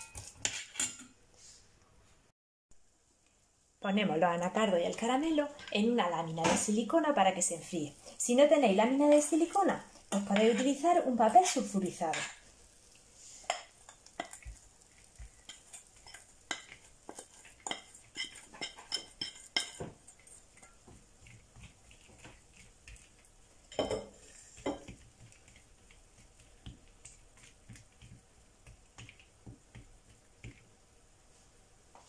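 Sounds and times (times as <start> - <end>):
metal spoon scraping a saucepan: 10.0 - 12.4, 15.1 - 20.8.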